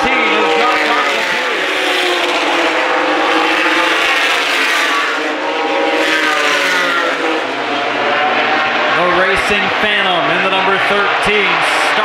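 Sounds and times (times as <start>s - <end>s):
race truck engines passing: 0.0s - 12.0s.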